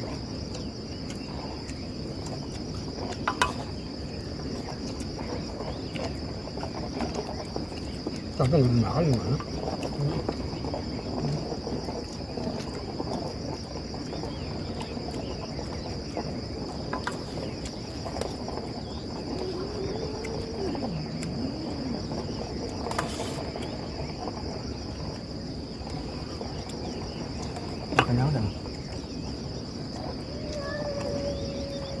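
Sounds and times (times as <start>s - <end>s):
crickets chirring: 0.0s - 32.0s.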